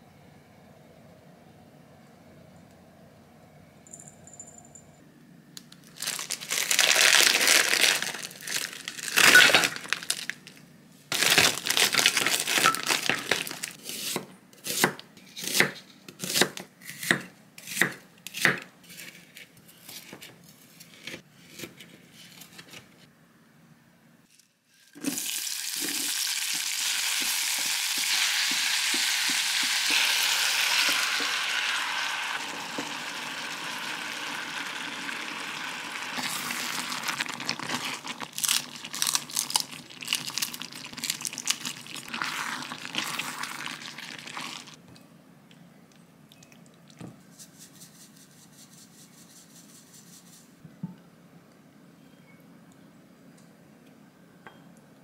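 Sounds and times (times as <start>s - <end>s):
food sizzling in a pot: 25.0s - 38.2s.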